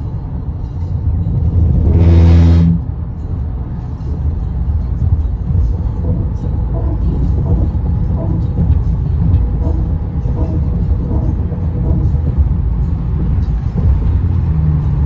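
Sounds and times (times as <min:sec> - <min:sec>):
tyre road rumble: 0:00.0 - 0:15.0
low buzz: 0:01.2 - 0:03.1.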